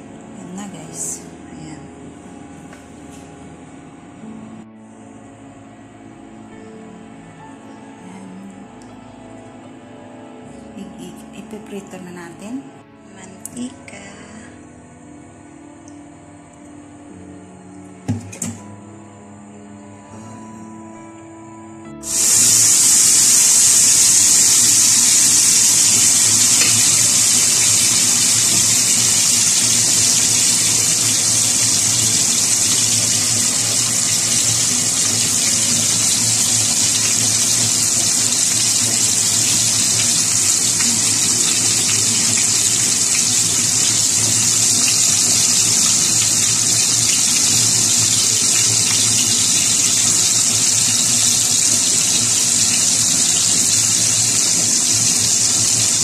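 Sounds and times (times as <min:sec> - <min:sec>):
fish sizzling in hot oil: 0:22.0 - 0:56.0.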